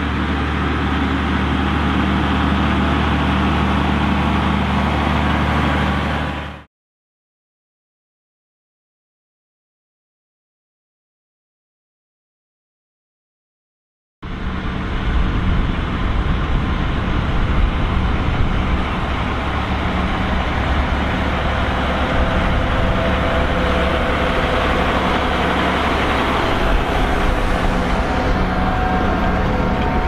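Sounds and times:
tractor diesel engine under load: 0.0 - 6.7, 14.2 - 30.0.

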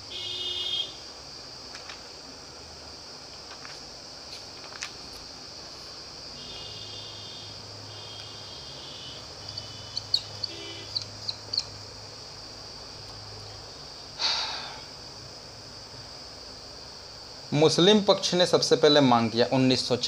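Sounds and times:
faint hiss and hum: 0.0 - 20.0
marker squeaking on whiteboard: 9.5 - 11.7.

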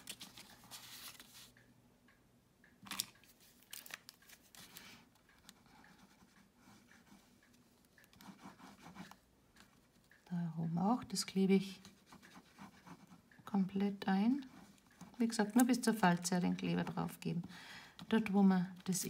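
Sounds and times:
cardstock rustling and tapping: 0.0 - 1.6.

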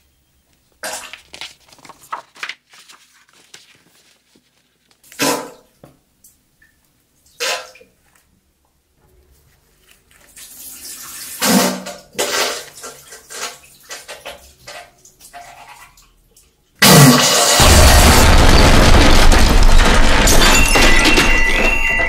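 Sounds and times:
wet spluttering into toilet: 10.2 - 16.6
loud explosion blast: 17.6 - 22.0.

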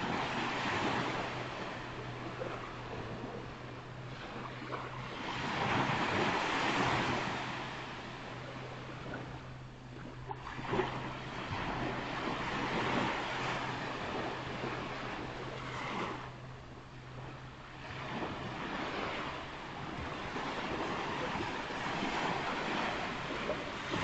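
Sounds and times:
surf washing onto beach: 0.0 - 2.7, 4.3 - 8.2, 17.8 - 24.0
steady low hum: 0.0 - 24.0.

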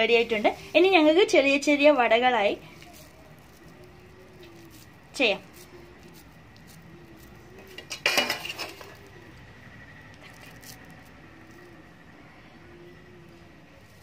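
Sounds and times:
dishes clinking: 7.7 - 9.0.

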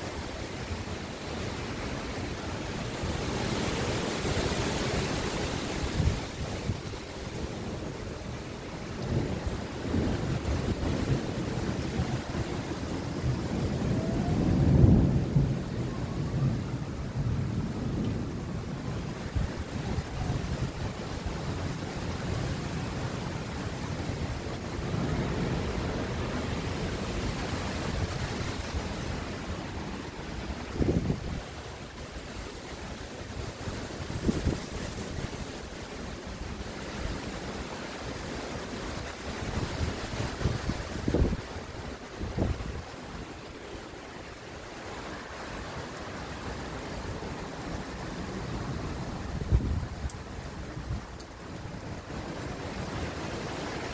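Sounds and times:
wind and rain rushing: 0.0 - 53.9
wind buffeting microphone: 1.6 - 35.8, 39.0 - 43.5, 44.8 - 53.9.

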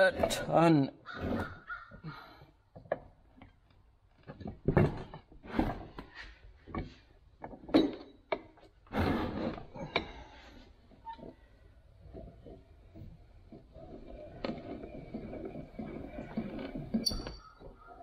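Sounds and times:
metal vise clunking on wood: 4.2 - 8.8.

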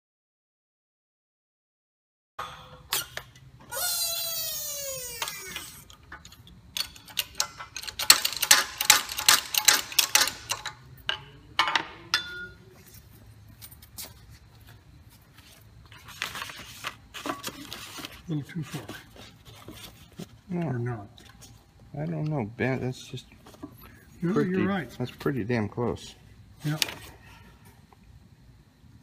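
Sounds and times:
metallic clicks and clanks: 5.2 - 12.6.

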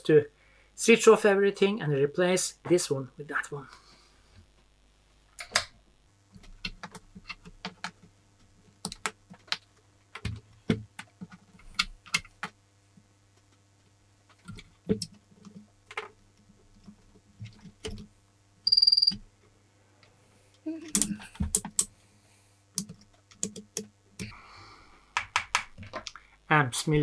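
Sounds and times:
test leads clicking into jacks: 22.7 - 24.3.

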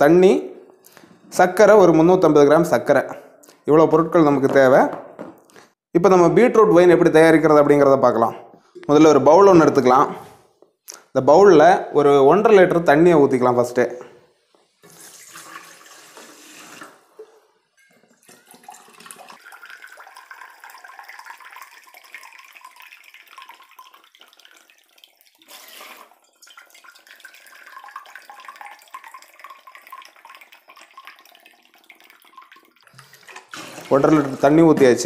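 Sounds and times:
water pouring into metal mug: 14.8 - 35.0.

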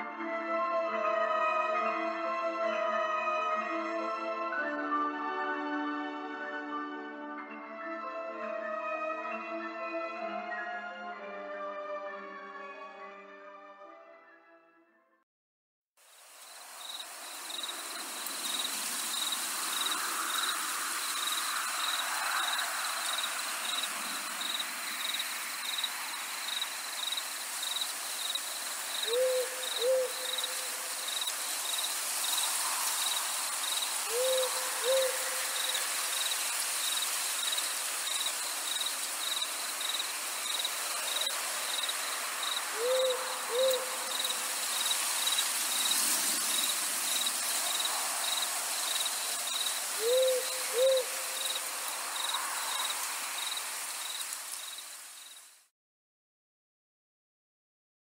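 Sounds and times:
constant hiss: 16.0 - 55.7
crickets chirping: 16.0 - 55.7
owl hooting: 29.0 - 31.3, 34.0 - 36.0, 42.5 - 45.3, 49.9 - 51.6.

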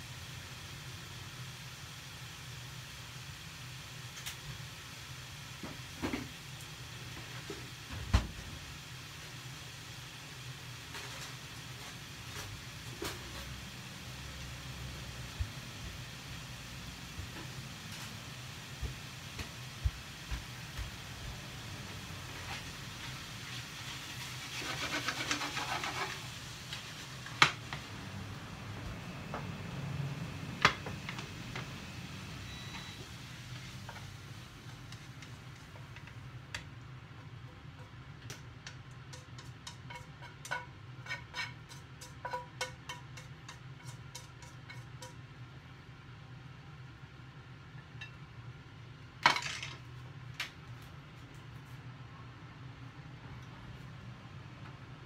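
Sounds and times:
food sizzling in a frying pan: 0.0 - 45.5
low hum and hiss: 0.0 - 55.0
chopsticks clattering against pan: 37.9 - 45.2.

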